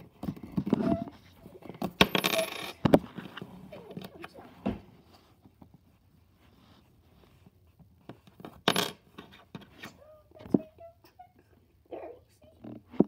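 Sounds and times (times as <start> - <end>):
coin clicking on tabletop: 2.0 - 2.8, 8.6 - 9.0.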